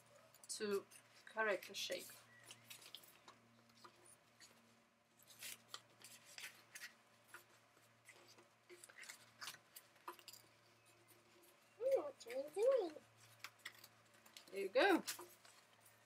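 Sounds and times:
scissors snipping paper: 5.2 - 7.5.

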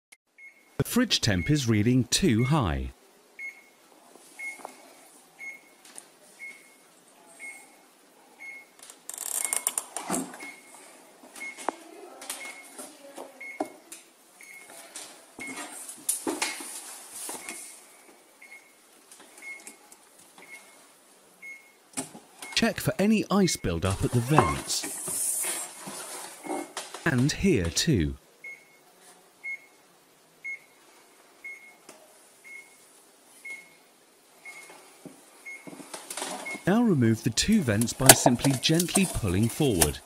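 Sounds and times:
fridge electronic beeping: 0.4 - 3.8, 8.4 - 8.8, 22.4 - 24.8, 27.1 - 28.8, 30.4 - 30.8, 31.4 - 31.8, 36.4 - 40.0.

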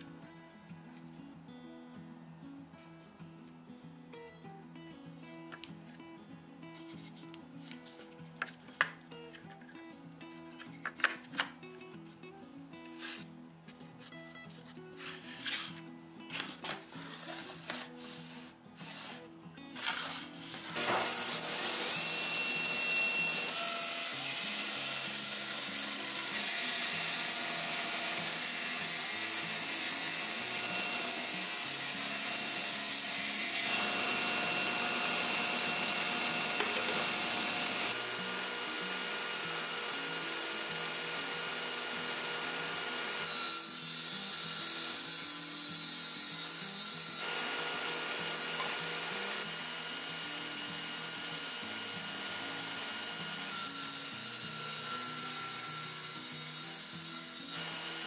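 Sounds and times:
table saw cutting wood: 17.1 - 58.0.

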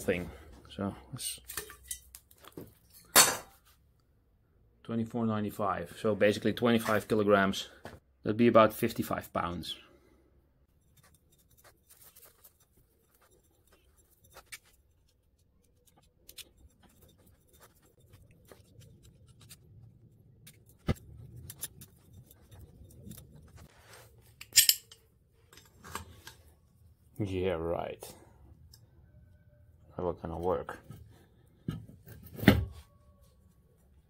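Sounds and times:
knife scratching thread: 10.7 - 25.0
metal clink of pipe wrench: 24.4 - 26.4.

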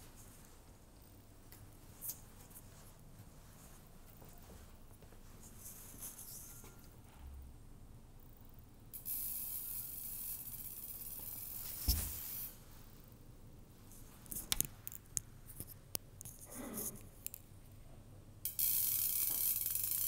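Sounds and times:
white noise hiss from speaker: 7.9 - 18.5
thump: 11.8 - 12.2.

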